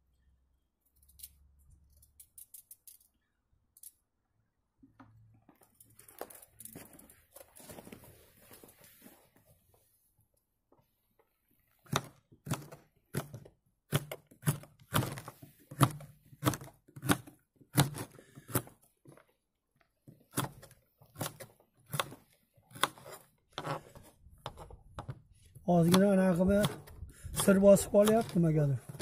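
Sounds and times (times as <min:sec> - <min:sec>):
knife chopping on wooden board: 0:13.9 - 0:18.6, 0:21.2 - 0:23.7.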